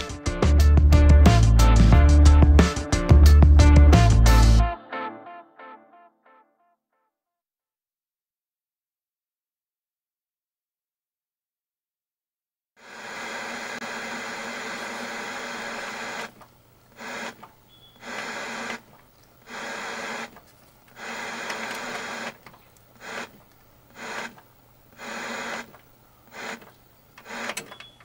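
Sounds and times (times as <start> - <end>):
electronic hiss: 12.8 - 20.4, 21.0 - 27.5.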